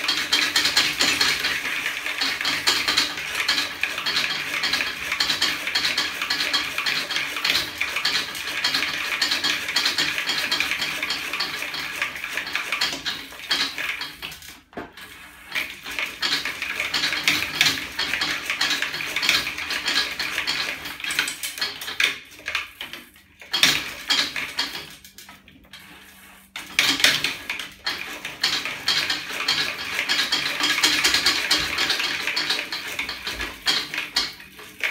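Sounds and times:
metal bicycle drive clattering: 0.0s - 25.9s, 26.6s - 34.9s.

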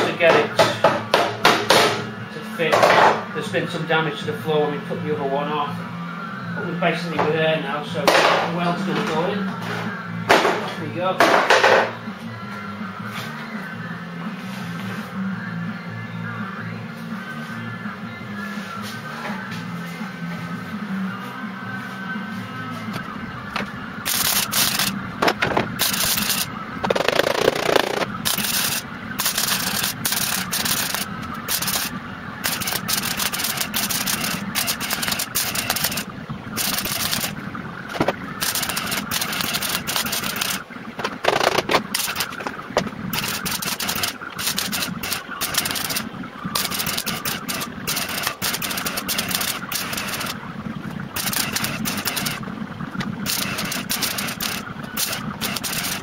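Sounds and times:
welder arc crackling: 23.0s - 56.0s.

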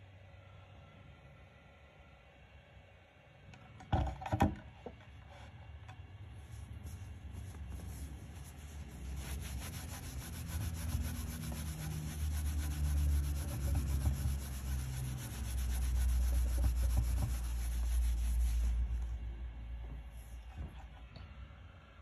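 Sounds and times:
cloth rubbing on wood: 6.4s - 19.2s.

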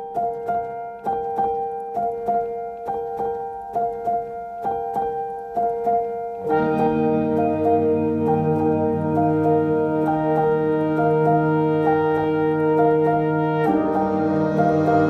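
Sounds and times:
sustained chords: 6.4s - 15.0s.

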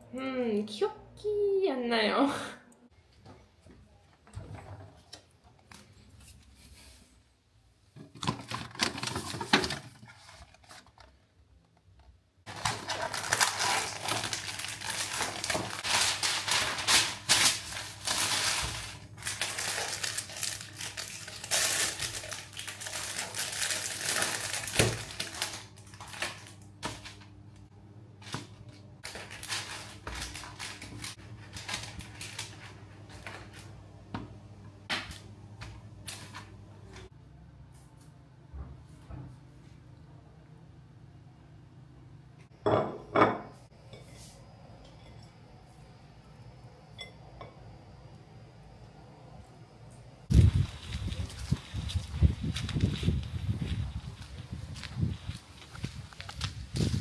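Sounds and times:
plastic packaging crinkling: 12.5s - 27.3s, 29.0s - 33.7s, 50.3s - 57.0s.

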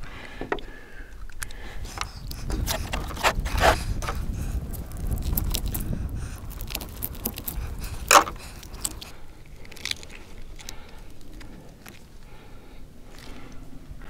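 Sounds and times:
small clicks and scrapes: 1.2s - 12.1s
knife scraping in gelatin: 1.9s - 9.1s.

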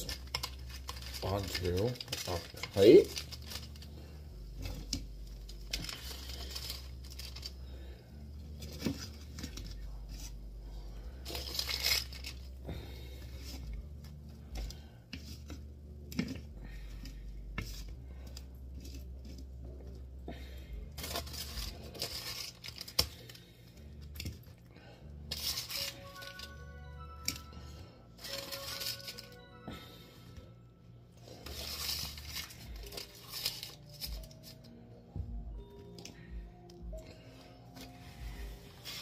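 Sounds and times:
spatula scraping foil: 0.0s - 13.8s, 14.6s - 19.5s, 20.4s - 24.2s, 25.3s - 26.6s, 28.2s - 29.4s, 31.2s - 34.8s, 37.8s - 39.0s.

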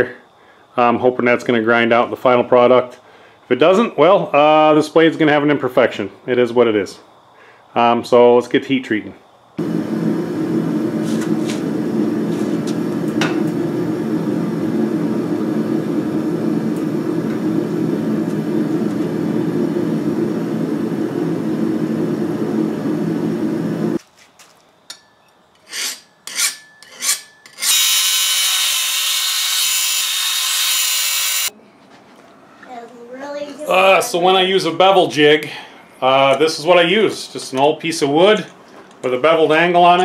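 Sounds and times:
forge burner rushing: 9.6s - 24.0s, 27.6s - 31.5s
belt grinder hissing: 27.6s - 31.5s.

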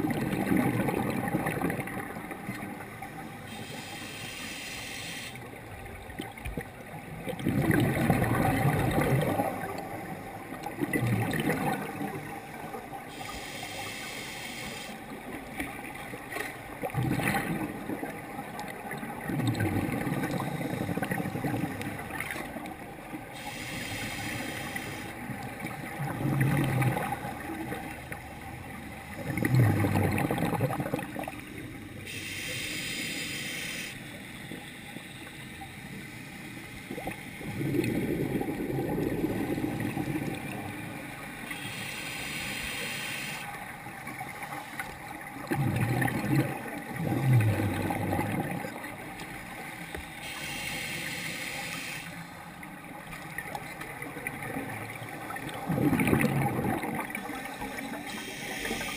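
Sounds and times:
gurgling exhaled bubbles: 0.0s - 2.9s, 6.1s - 12.7s, 16.7s - 23.5s, 25.2s - 28.0s, 29.1s - 31.4s, 36.9s - 41.5s, 45.2s - 49.2s, 53.2s - 58.9s
regulator hissing inhales: 3.5s - 5.4s, 13.1s - 15.0s, 23.4s - 25.1s, 32.1s - 34.0s, 41.5s - 43.5s, 50.2s - 52.2s, 58.1s - 58.9s.

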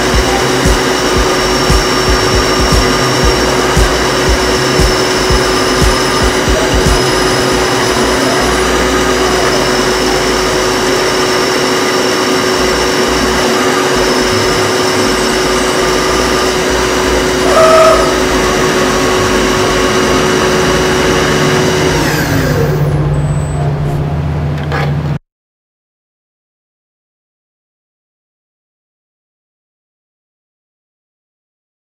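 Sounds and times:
brief higher tone: 0.0s - 24.6s
milling machine motor whine: 0.0s - 25.2s.

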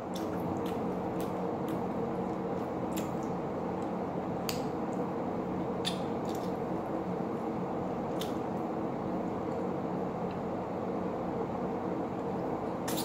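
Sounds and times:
wet chewing mouth sounds: 0.0s - 3.4s
steady low hum: 0.0s - 13.0s.

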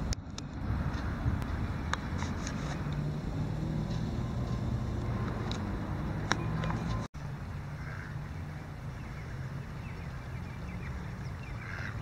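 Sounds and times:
faint bird calls: 7.7s - 12.0s.

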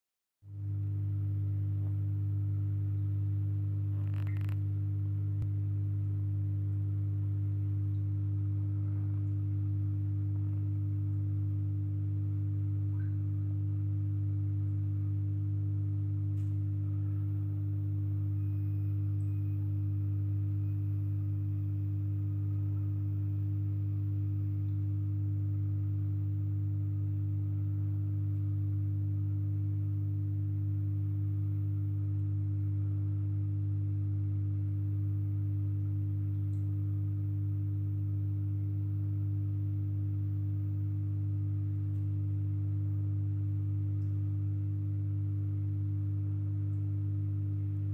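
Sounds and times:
aquarium equipment electrical hum: 0.5s - 47.9s.

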